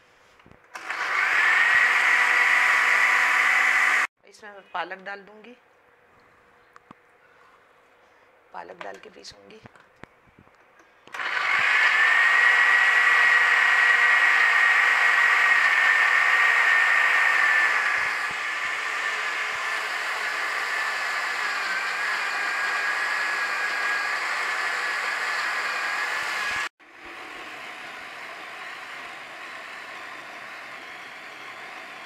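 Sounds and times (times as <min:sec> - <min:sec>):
blender whining: 0:00.8 - 0:04.1, 0:11.1 - 0:32.0.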